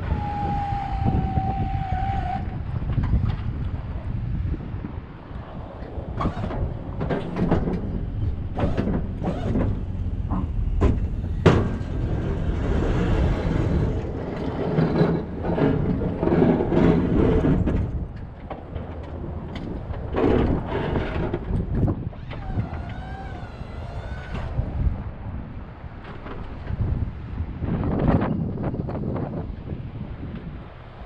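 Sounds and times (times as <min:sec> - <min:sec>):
plow blade scraping pavement: 0:00.0 - 0:28.1
truck engine running: 0:06.1 - 0:20.5.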